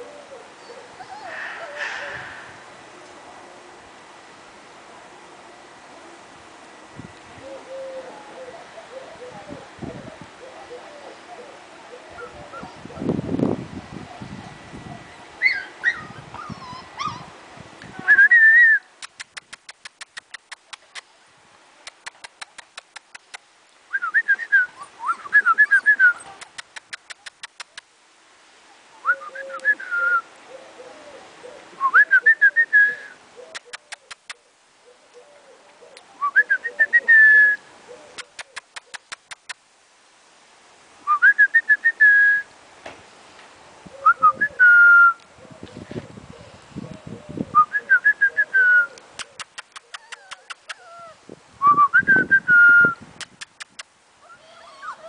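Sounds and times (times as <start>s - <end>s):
puppy squeaky whimpers: 0.6s - 2.0s, 15.4s - 17.3s, 49.8s - 51.2s, 54.3s - 55.0s
puppies whining and squealing: 0.6s - 2.2s, 15.4s - 17.4s, 24.8s - 26.4s, 49.4s - 51.2s, 54.3s - 55.0s.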